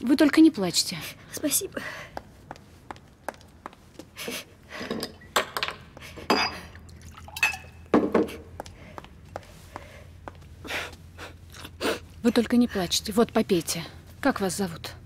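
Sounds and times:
light footsteps: 0:01.8 - 0:04.4, 0:08.2 - 0:11.3
glass clinking: 0:04.9 - 0:06.7, 0:07.3 - 0:07.8
water pouring into a glass: 0:06.9 - 0:07.6.

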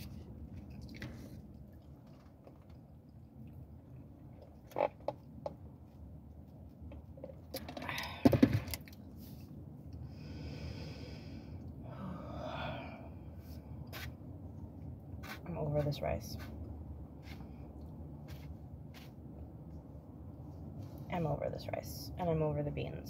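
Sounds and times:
soft breaths: 0:09.1 - 0:14.2.

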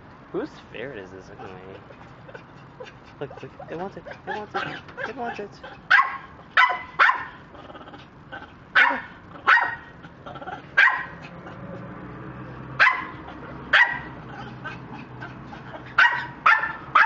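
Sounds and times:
small dog barking: 0:02.8 - 0:07.5, 0:08.7 - 0:11.6, 0:12.8 - 0:17.0.

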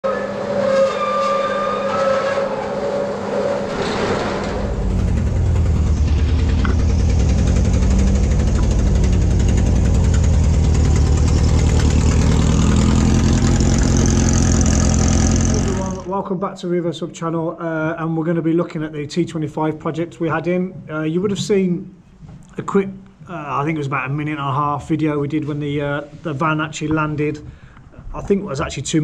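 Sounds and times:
roller shutter door rolling up: 0:00.1 - 0:14.4
van engine running: 0:03.6 - 0:16.1.

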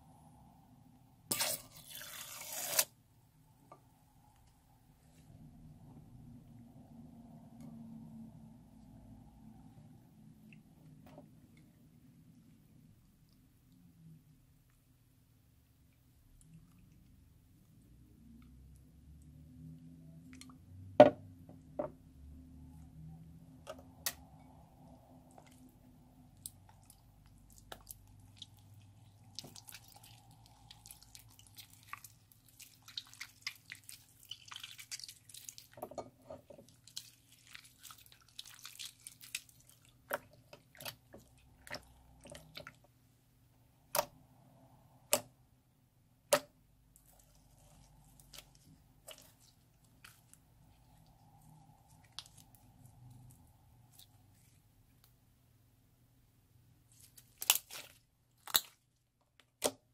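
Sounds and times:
slime squishing: 0:23.6 - 0:42.9, 0:46.3 - 0:55.2, 0:56.8 - 0:59.9.

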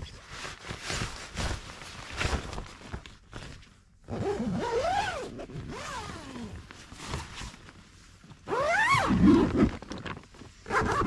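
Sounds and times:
nylon fabric rustling: 0:00.0 - 0:11.0
tent zipper pulled: 0:04.1 - 0:07.6, 0:08.4 - 0:11.0.

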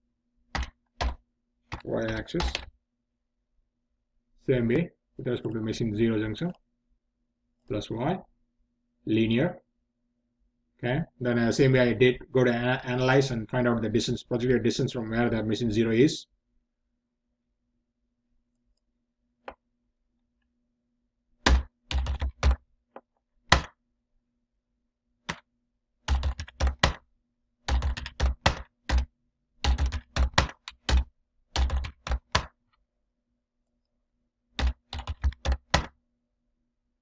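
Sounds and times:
computer keyboard typing: 0:00.5 - 0:02.7, 0:21.5 - 0:22.6, 0:26.1 - 0:27.0, 0:27.7 - 0:32.6, 0:34.6 - 0:35.9.

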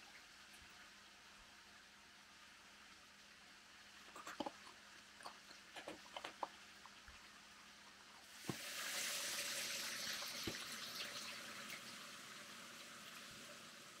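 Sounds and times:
rushing hiss of water: 0:08.3 - 0:14.0.

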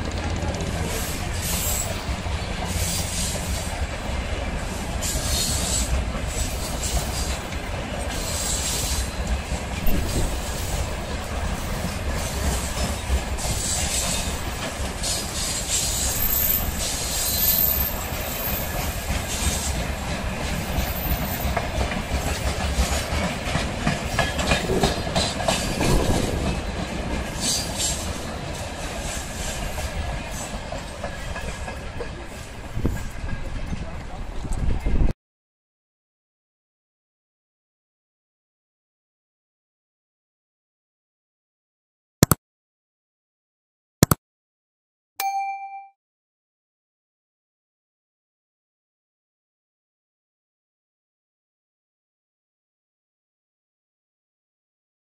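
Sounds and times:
wheels clacking over rail joints: 0:00.0 - 0:17.1, 0:17.8 - 0:34.7
train wheels rumbling on rail: 0:00.0 - 0:35.1
high-pitched wheel squeal: 0:15.4 - 0:18.5.

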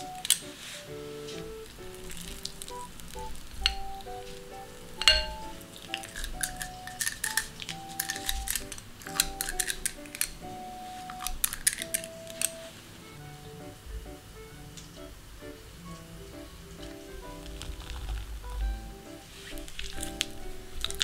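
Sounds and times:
soft melodic background music: 0:00.0 - 0:21.0
metal scoop clinking on glass and metal: 0:05.0 - 0:10.3.

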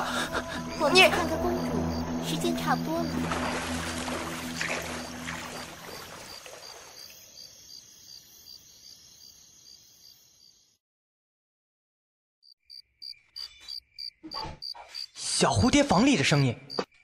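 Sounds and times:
low background music: 0:00.0 - 0:06.3
cricket chirping: 0:00.0 - 0:10.8, 0:12.4 - 0:15.1.

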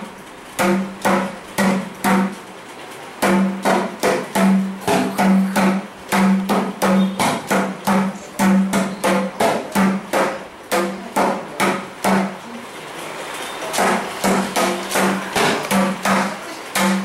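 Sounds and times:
crisp drum slaps: 0:03.2 - 0:12.4
drum strokes ringing: 0:03.2 - 0:12.4, 0:13.5 - 0:17.0.

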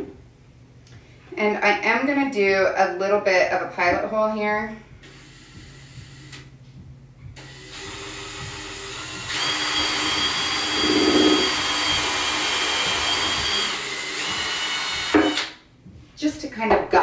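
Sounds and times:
cordless drill drilling plastic pipe: 0:05.0 - 0:06.4, 0:07.4 - 0:15.6.

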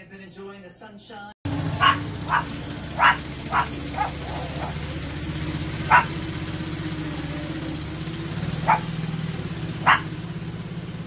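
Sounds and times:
motor drone: 0:01.4 - 0:11.0
small dog barking: 0:01.5 - 0:10.3.

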